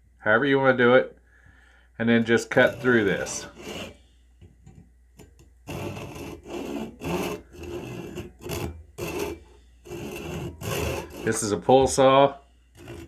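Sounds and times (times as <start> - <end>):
saw rasping through wood: 2.4 - 4.0, 5.7 - 11.6, 12.8 - 13.0.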